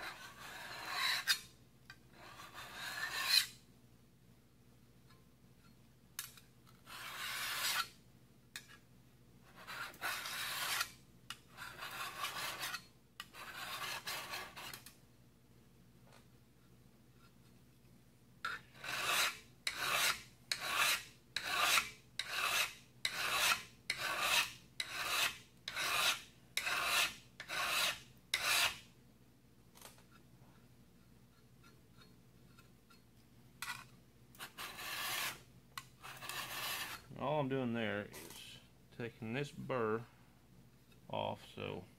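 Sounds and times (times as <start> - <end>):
file rasping on steel: 0.0 - 1.5, 2.1 - 3.6, 6.8 - 8.0, 9.5 - 14.8, 18.4 - 28.9, 34.4 - 37.1.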